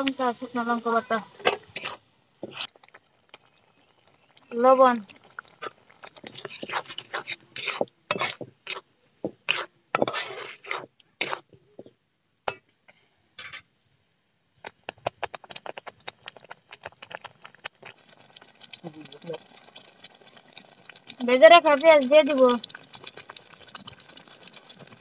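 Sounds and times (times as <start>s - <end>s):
spatula scraping metal pan: 1.4s - 2.7s, 5.6s - 11.5s, 13.4s - 13.6s.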